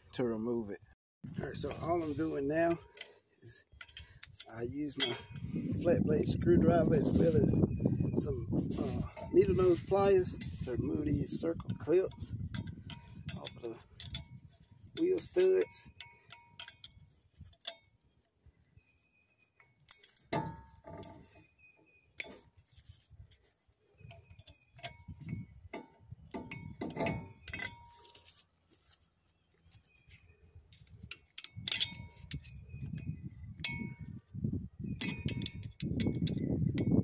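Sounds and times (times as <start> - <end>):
metal tools clicking and clinking: 2.6 - 5.5, 8.8 - 18.0, 19.6 - 21.4, 23.3 - 28.4, 30.7 - 34.1, 35.0 - 37.0.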